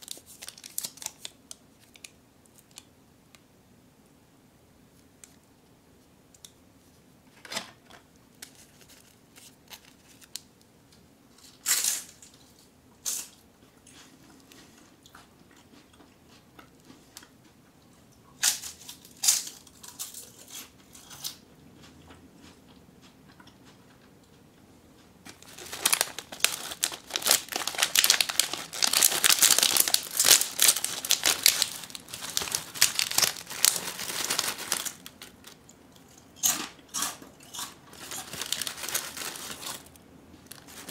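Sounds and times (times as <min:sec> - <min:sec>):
plastic wrapper crinkling: 0:00.0 - 0:02.9, 0:08.4 - 0:10.5, 0:25.3 - 0:35.7, 0:37.9 - 0:40.9
snack bag tearing: 0:25.3 - 0:35.6, 0:36.4 - 0:40.9.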